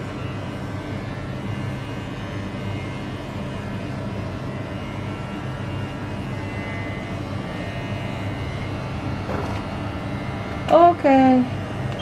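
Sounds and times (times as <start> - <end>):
electric clippers buzzing: 0.0 - 12.0.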